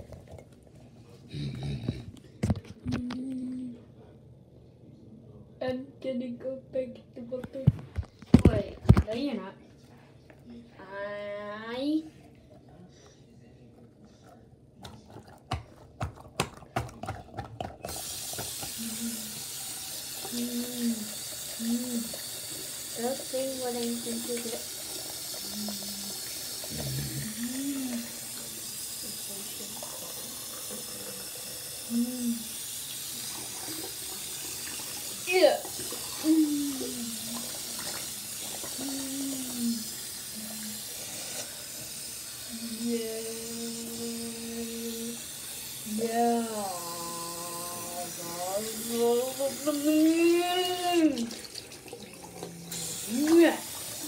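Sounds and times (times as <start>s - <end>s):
water running into sink: 16.6s - 54.0s.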